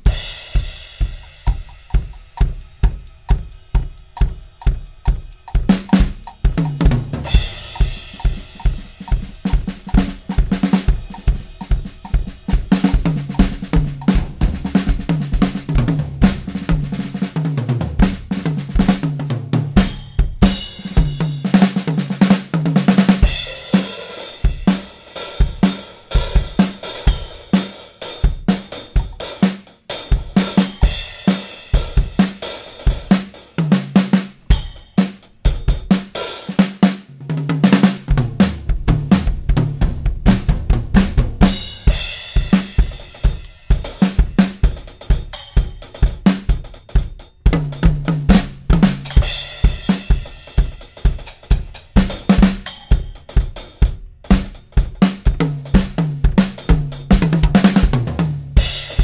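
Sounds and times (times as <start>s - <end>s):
cymbals washing: 0.0s - 14.2s, 23.2s - 33.6s, 41.4s - 47.0s, 49.0s - 55.0s, 58.6s - 59.0s
hi-hat: 0.0s - 14.2s, 23.2s - 33.6s, 41.7s - 47.8s, 48.9s - 55.8s, 58.8s - 59.0s
bass drum: 0.0s - 27.6s, 28.2s - 36.1s, 37.0s - 59.0s
snare drum: 0.0s - 59.0s.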